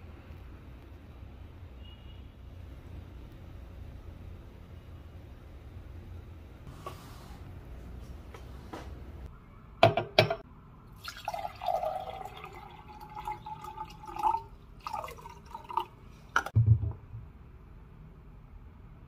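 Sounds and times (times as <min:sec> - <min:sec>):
water poured into glass: 0:11.0 - 0:16.5.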